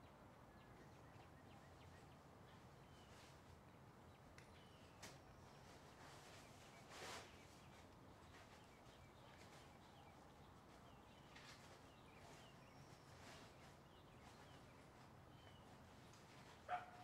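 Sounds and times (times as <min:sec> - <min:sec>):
faint rustles: 0:04.6 - 0:17.0.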